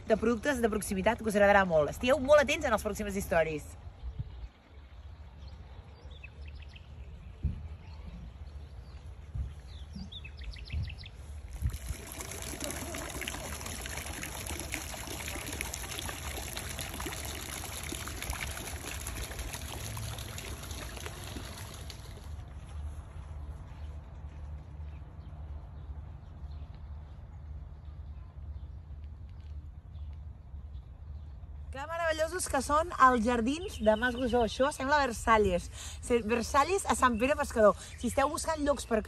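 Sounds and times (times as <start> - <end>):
water trickling into a pool: 11.4 - 22.7.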